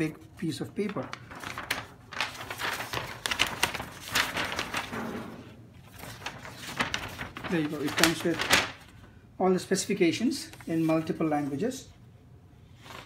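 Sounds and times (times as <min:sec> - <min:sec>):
paper rustling and crackling: 0:00.0 - 0:09.2, 0:10.4 - 0:11.7.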